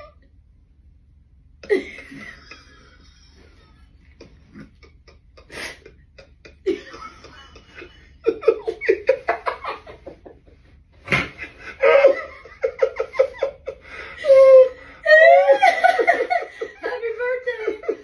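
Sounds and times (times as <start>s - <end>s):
man and woman laughing: 1.6s - 18.0s.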